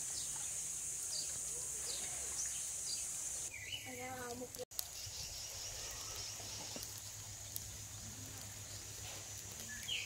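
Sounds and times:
falling bird chirp: 0:00.1 - 0:04.2, 0:04.8 - 0:09.0, 0:09.6 - 0:10.0.

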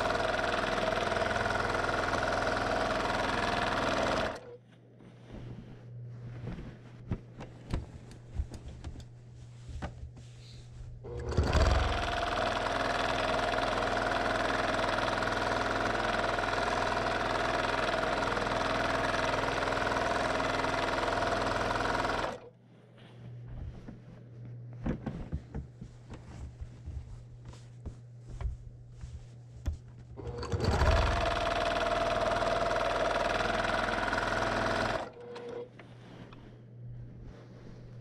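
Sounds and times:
sewing machine running fast: 0:00.0 - 0:04.5, 0:11.1 - 0:22.4, 0:30.2 - 0:35.5
low hum: 0:35.6 - 0:38.0.

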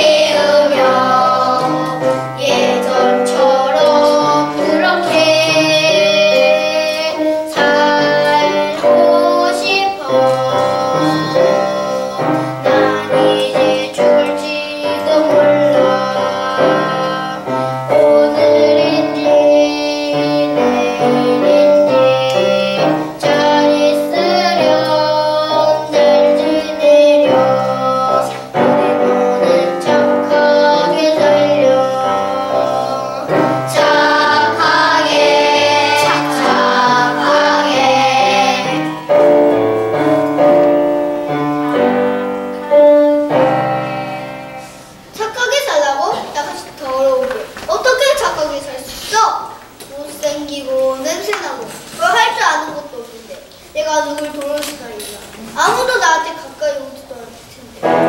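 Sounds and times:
children singing: 0:00.0 - 0:45.0
piano accompaniment: 0:00.0 - 0:48.8, 0:57.6 - 0:58.0.

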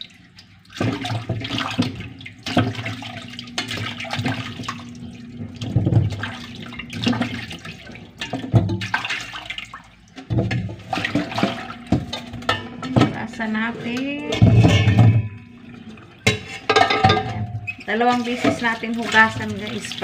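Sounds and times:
water sloshing and splashing: 0:00.0 - 0:20.0
roots knocking against metal bowl: 0:10.2 - 0:19.8.

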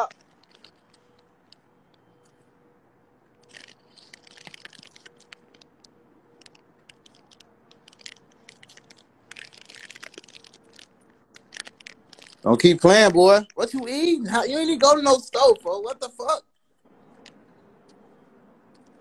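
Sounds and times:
chewing crunchy chips: 0:03.4 - 0:12.5.

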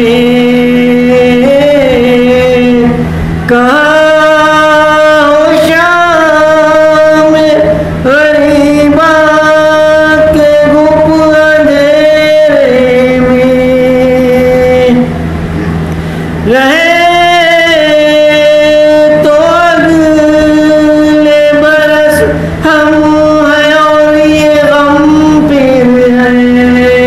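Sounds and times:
man singing amplified elegy: 0:00.0 - 0:15.1, 0:16.4 - 0:27.0.

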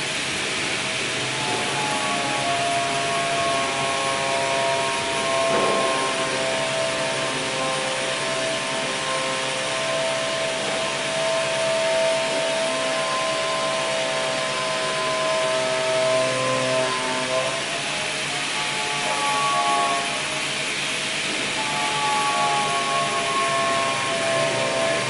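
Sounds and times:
machinery whirring and whining: 0:00.0 - 0:25.0.

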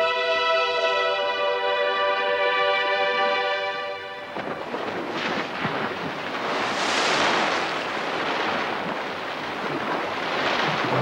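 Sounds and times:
rushing water splash: 0:04.1 - 0:11.0.

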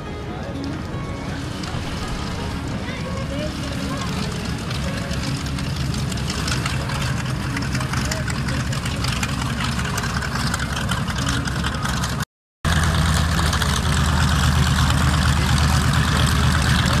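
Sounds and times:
radial engines humming: 0:00.0 - 0:12.2.

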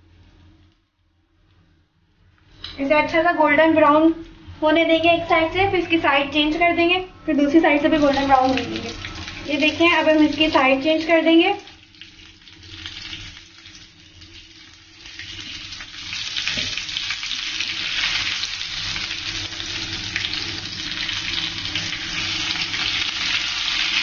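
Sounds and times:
cutlets sizzling in oil: 0:07.8 - 0:24.0.

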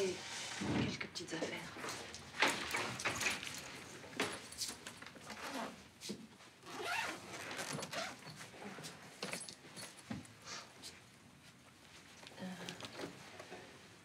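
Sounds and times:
zip pulls: 0:06.6 - 0:07.2.

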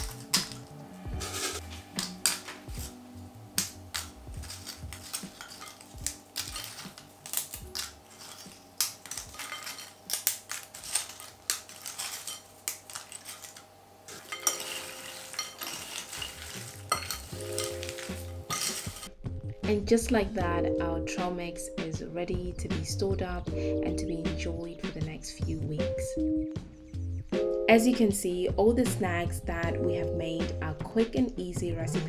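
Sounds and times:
crisp chips crackling: 0:03.6 - 0:19.1
spoon clinking against glass bowl: 0:07.7 - 0:19.1.

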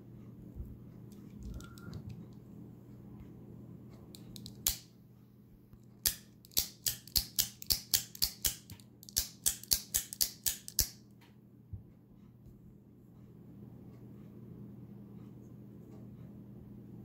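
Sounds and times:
knife blade snapping clicks: 0:04.2 - 0:04.9, 0:06.0 - 0:11.0.

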